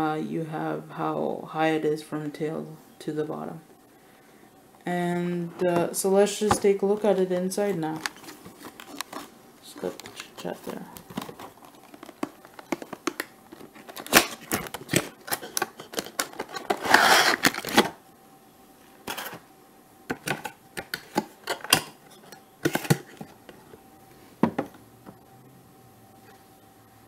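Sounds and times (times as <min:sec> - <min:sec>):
cardboard rustling scrape: 0:11.1 - 0:17.9.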